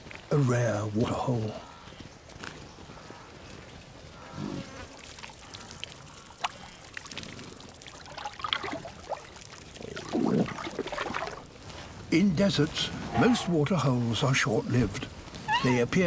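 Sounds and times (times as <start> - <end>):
zebra lapping water: 4.2 - 11.6.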